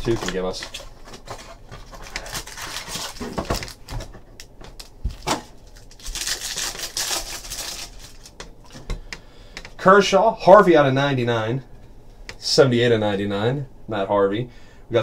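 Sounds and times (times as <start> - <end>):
card pack wrapper tearing: 1.8 - 3.9, 4.7 - 8.4.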